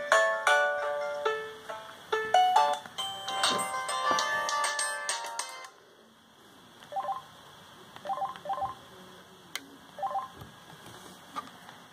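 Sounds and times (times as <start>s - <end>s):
ringtone melody: 0.0s - 5.7s.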